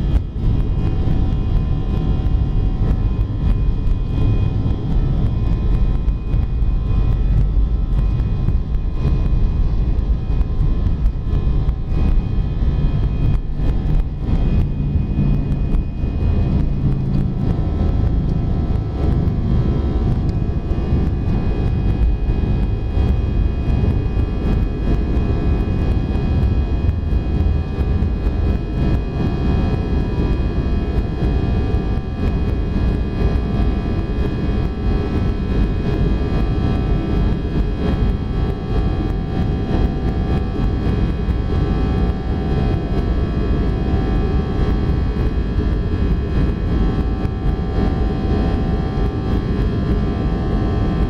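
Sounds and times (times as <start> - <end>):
aircraft cabin rumble: 0.0 - 51.0
whining tones: 0.1 - 29.4.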